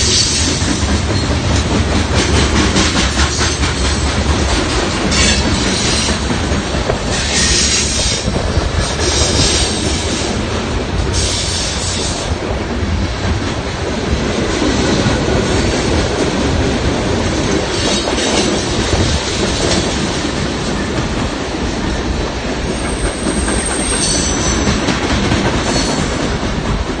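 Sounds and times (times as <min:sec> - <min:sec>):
train wheels clattering on rails: 0:00.0 - 0:27.0
high wheel squeal: 0:22.8 - 0:24.8.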